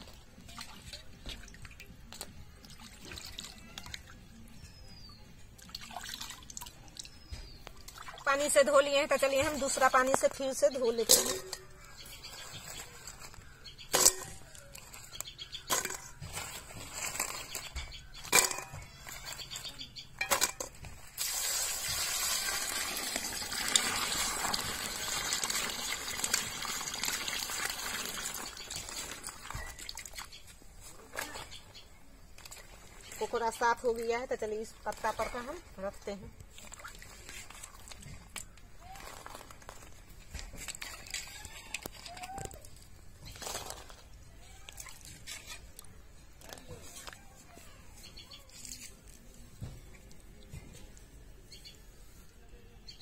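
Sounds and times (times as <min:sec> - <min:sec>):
water dripping and splashing: 0:00.0 - 0:04.5, 0:05.4 - 0:17.6, 0:20.8 - 0:30.9, 0:32.4 - 0:47.2
crab shells clattering on metal pot: 0:09.1 - 0:21.0
water pouring into pot: 0:21.2 - 0:30.0
hands swishing crabs in water: 0:36.3 - 0:51.1.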